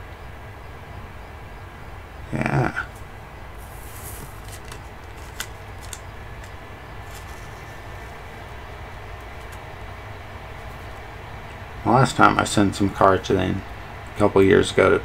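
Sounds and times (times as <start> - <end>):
low background hum: 0.0 - 15.0
card rustling: 3.6 - 9.9, 10.5 - 11.1.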